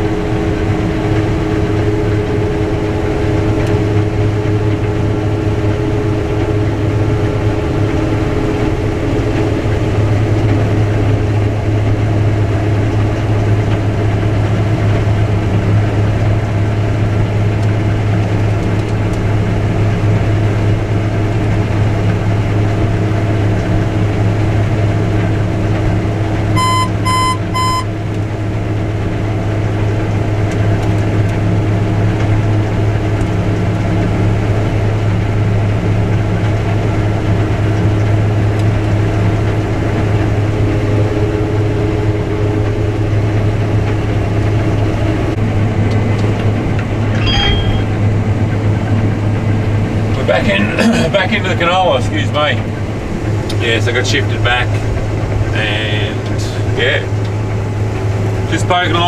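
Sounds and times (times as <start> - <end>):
combine harvester engine drone: 0.0 - 59.0
short electronic beeps: 26.6 - 27.9, 47.1 - 48.0.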